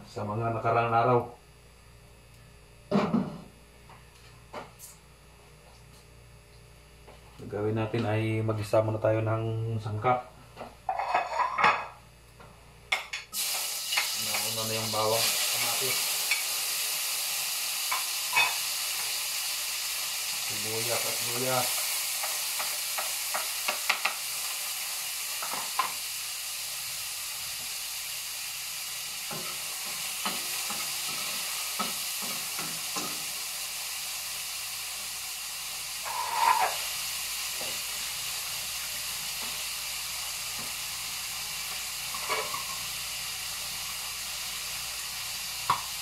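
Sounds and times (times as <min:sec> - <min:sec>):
food sizzling in oil: 0:13.2 - 0:46.0
spatula scraping a pan: 0:36.0 - 0:36.8.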